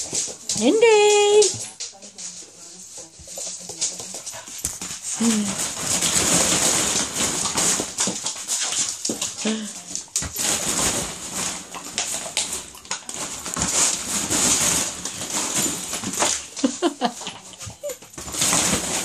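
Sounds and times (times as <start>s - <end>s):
plastic balls clattering: 3.2s - 19.0s
dog whining: 17.7s - 18.2s.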